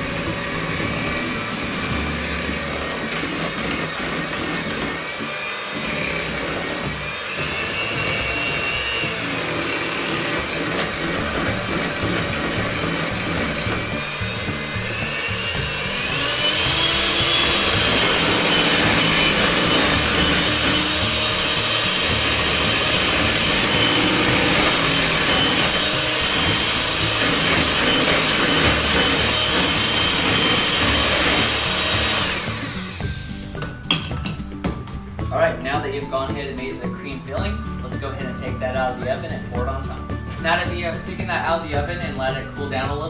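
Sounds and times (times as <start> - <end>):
electric hand mixer whining: 0.0 - 33.6.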